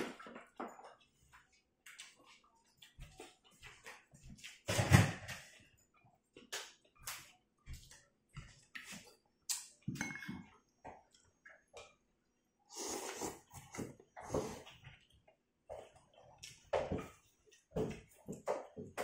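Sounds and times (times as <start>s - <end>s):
noodle slurp: 12.7s - 14.7s.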